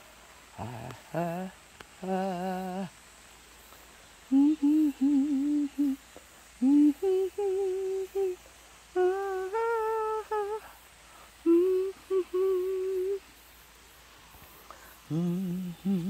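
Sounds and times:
person humming: 0:00.5 - 0:03.1, 0:04.3 - 0:13.3, 0:15.0 - 0:16.0.

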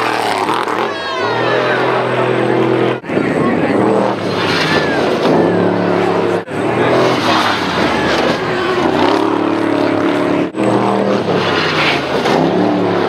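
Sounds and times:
truck engines revving high: 0:00.0 - 0:13.0.

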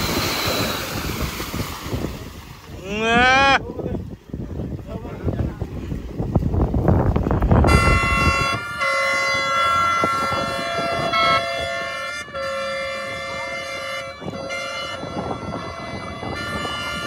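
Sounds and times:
rumbling noise: 0:00.0 - 0:03.2
horn-like pitched tone: 0:07.6 - 0:17.0.

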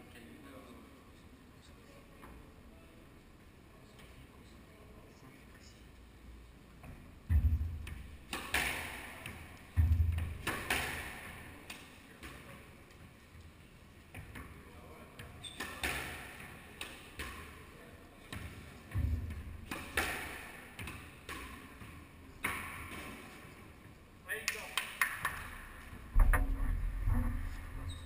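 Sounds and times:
ball smacking off walls and floor: 0:07.3 - 0:11.3, 0:18.3 - 0:23.2
squash ball struck by rackets: 0:07.3 - 0:11.5, 0:15.6 - 0:17.6, 0:18.3 - 0:23.2.

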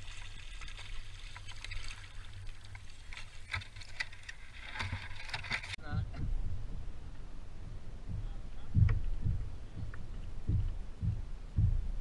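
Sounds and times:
water lapping around a kayak: 0:00.0 - 0:05.8
steady low rumble: 0:05.8 - 0:12.0.

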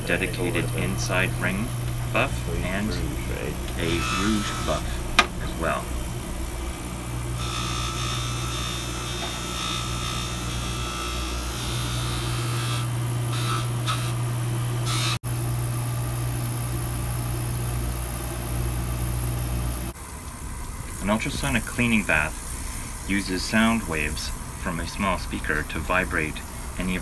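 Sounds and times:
polishing motor humming: 0:00.0 - 0:15.2
ring rubbing on buff: 0:00.8 - 0:06.7.

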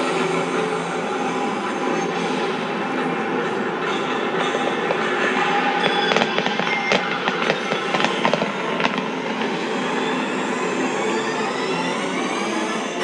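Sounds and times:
fireworks crackling: 0:00.0 - 0:11.5
sharp firework cracks: 0:04.5 - 0:10.4.

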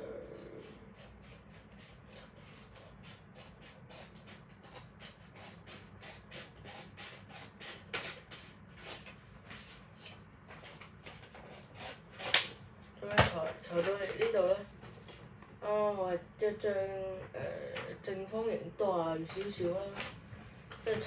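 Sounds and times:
paper being cut by hand: 0:00.6 - 0:09.1.

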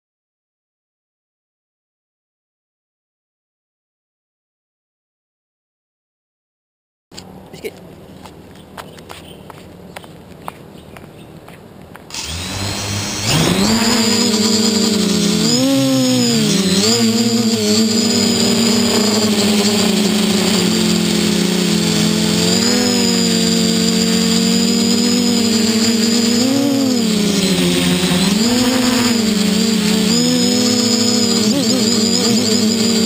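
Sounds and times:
quadcopter motors buzzing: 0:12.1 - 0:33.0.

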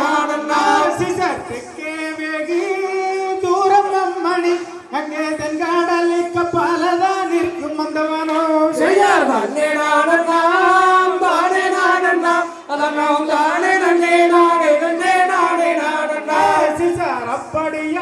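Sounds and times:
folk song over loudspeakers: 0:00.0 - 0:18.0.

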